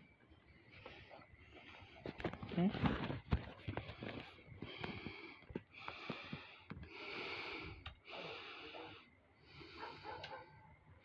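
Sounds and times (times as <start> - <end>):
person breathing heavily: 3.0 - 10.6.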